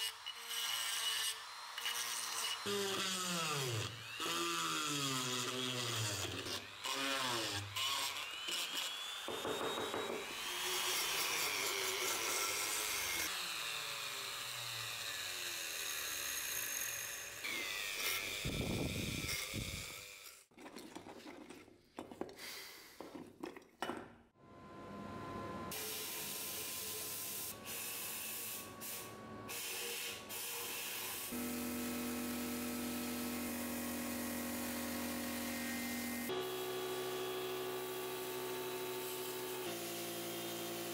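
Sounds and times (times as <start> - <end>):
rotary tool whining: 0.0 - 20.5
sandblaster hissing: 25.7 - 31.4.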